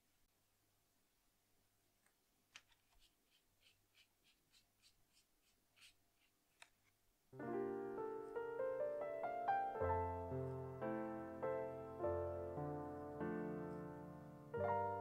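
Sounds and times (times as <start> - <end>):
paintbrush scratching on paper: 2.6 - 6.9
piano music: 7.4 - 15.0.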